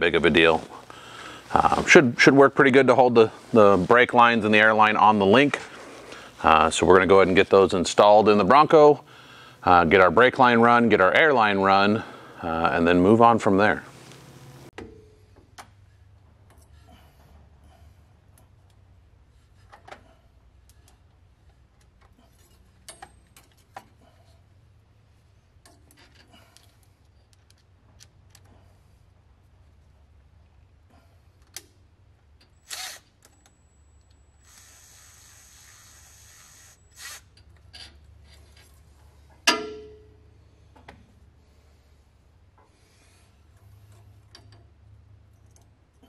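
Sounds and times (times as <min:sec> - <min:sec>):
cordless driver running: 0:32.7 - 0:33.1, 0:34.4 - 0:37.4
sharp metal clank: 0:39.5 - 0:40.2.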